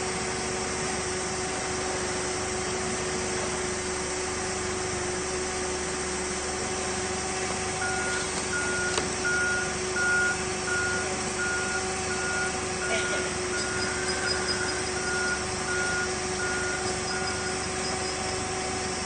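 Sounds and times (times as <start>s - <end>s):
forklift engine humming: 0.0s - 19.0s
reversing alarm beeping: 7.8s - 19.0s.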